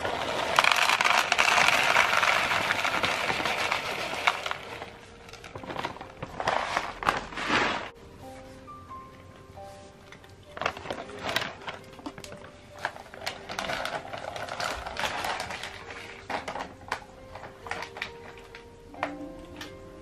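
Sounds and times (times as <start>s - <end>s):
cat crunching dry food: 0.0s - 7.8s
faint background music: 0.0s - 20.0s.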